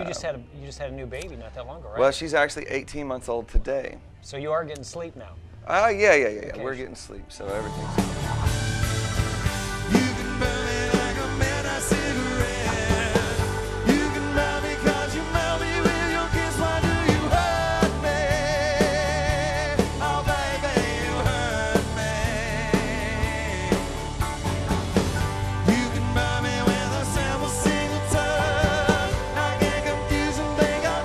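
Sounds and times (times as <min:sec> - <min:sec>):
drums steady beat: 0:07.5 - 0:31.0
man singing with vibrato: 0:09.8 - 0:24.2, 0:25.6 - 0:31.0.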